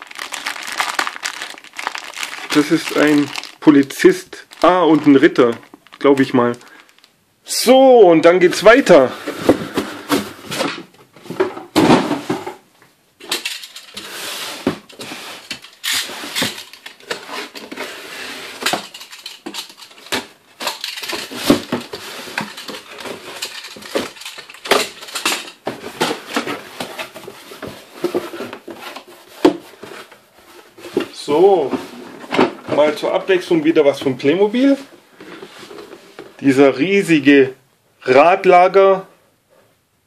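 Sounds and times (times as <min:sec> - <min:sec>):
boxes shoved across a table: 0:09.1 - 0:12.6, 0:13.3 - 0:33.1
packing tape pulled off: 0:15.7 - 0:16.9.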